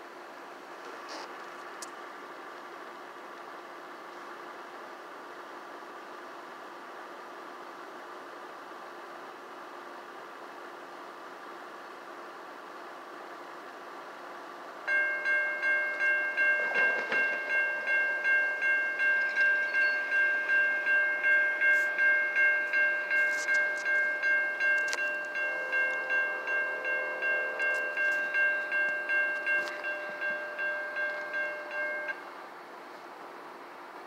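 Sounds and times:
railroad crossing bell ringing: 14.8s - 32.4s.

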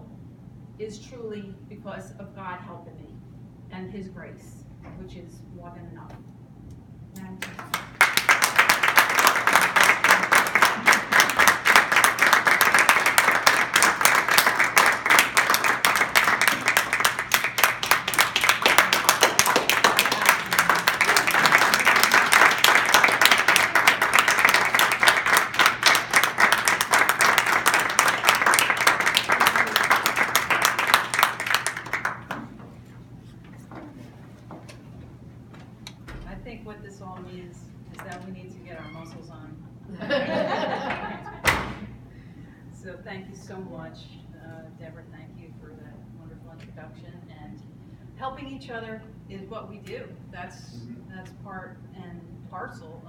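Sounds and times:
people applauding: 7.4s - 32.6s.

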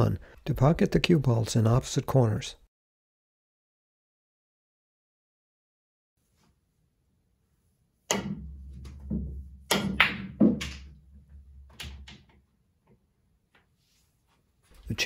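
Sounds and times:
cue tip striking ball: 8.1s - 11.0s
pool balls clacking: 8.1s - 12.5s
balls rolling on table: 8.2s - 12.4s.

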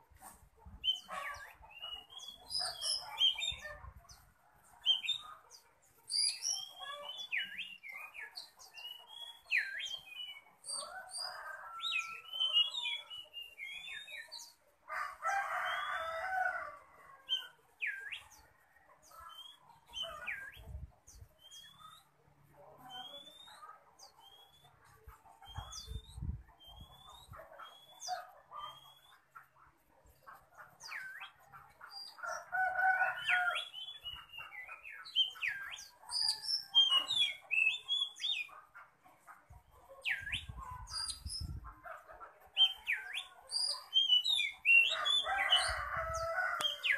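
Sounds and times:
bird singing whistles and chatter: 22.9s - 23.6s, 25.4s - 29.3s.

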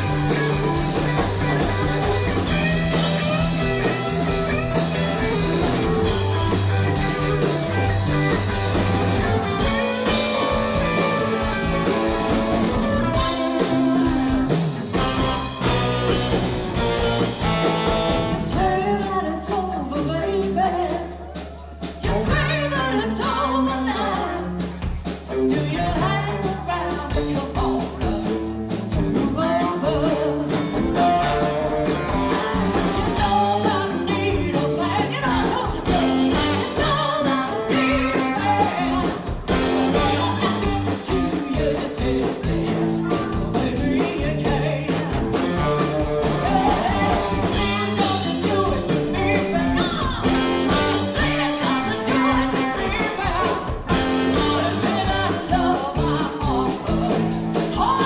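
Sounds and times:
bass guitar: 0.0s - 58.0s
drums: 0.0s - 58.0s
electric guitar: 0.0s - 58.0s
woman singing: 9.2s - 15.8s, 18.3s - 58.0s.

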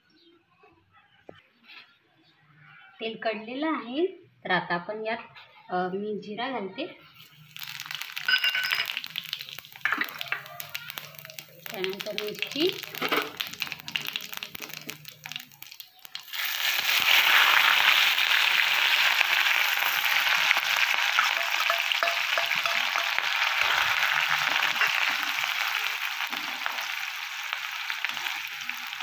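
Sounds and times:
chillies sizzling in hot oil: 7.1s - 29.0s.

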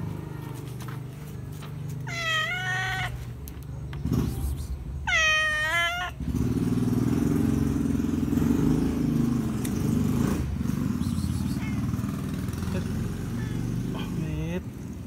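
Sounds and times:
cat meowing: 2.0s - 3.3s, 5.0s - 6.2s.

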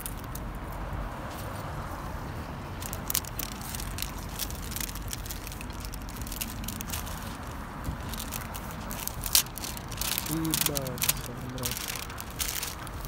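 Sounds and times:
low outdoor rumble: 0.0s - 13.0s
jacket fabric rustling: 2.8s - 13.0s.

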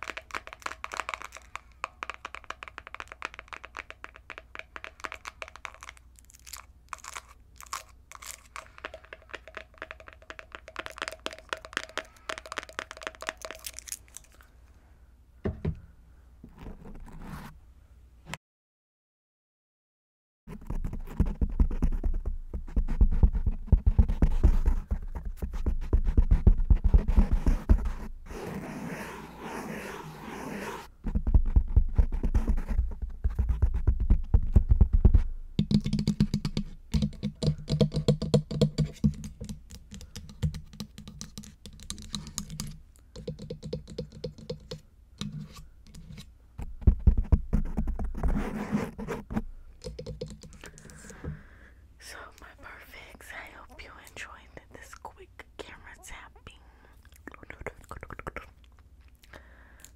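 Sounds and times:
deep muffled thumps: 25.8s - 27.4s
fingernails tapping on microphone: 49.8s - 51.3s.

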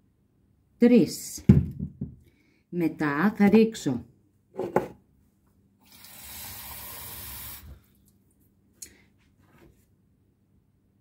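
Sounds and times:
tap water running into mug: 5.8s - 7.8s.

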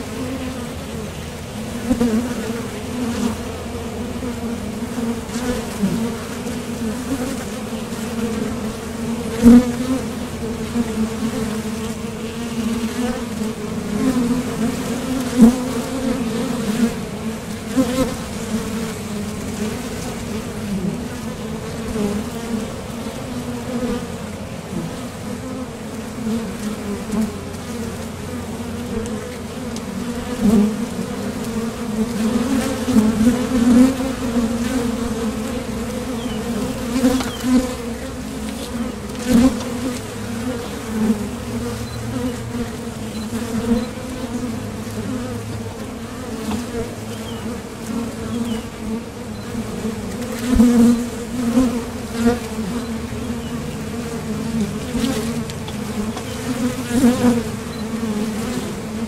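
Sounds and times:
honeybees buzzing: 0.0s - 59.0s.

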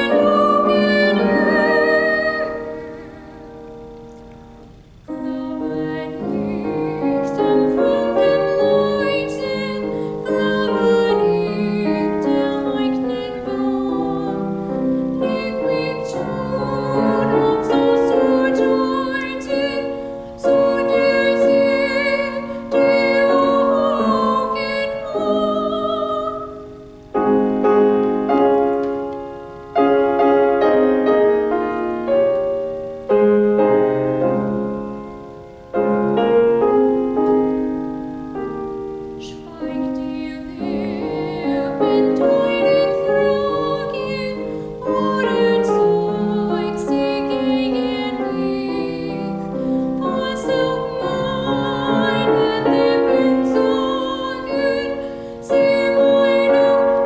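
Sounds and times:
woman singing: 0.0s - 3.5s, 5.1s - 27.3s, 39.1s - 57.0s
grand piano: 0.0s - 57.0s.

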